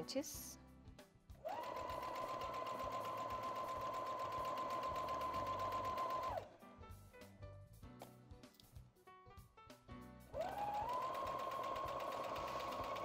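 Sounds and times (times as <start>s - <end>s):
sewing machine stitching: 1.4s - 6.5s, 10.3s - 13.0s.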